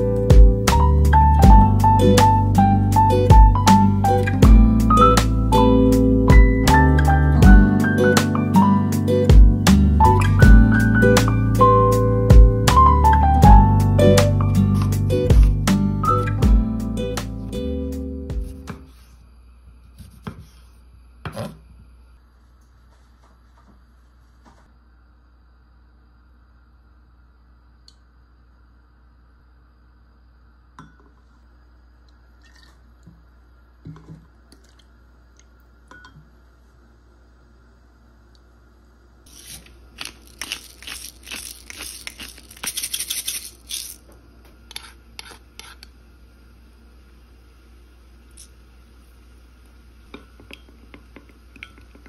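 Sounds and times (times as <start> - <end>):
wooden spoon scraping glass mug: 44.7 - 45.9.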